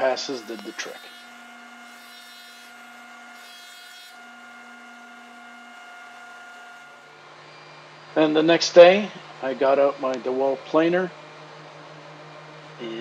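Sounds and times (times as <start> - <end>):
jointer humming: 0.0 - 7.3.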